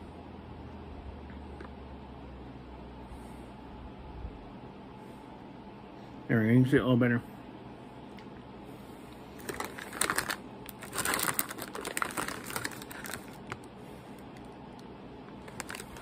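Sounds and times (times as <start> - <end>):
candy wrapper crinkling: 9.3 - 16.0.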